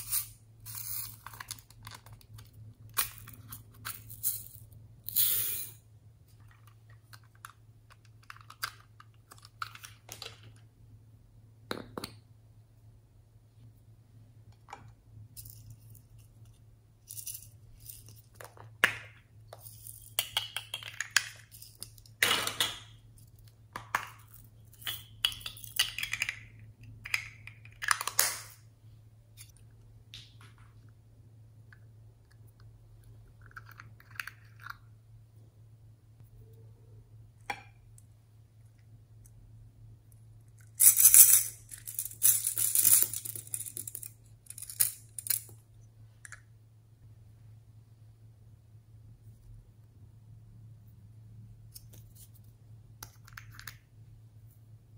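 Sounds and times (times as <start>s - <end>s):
faint steady hum: 0.0s - 54.9s.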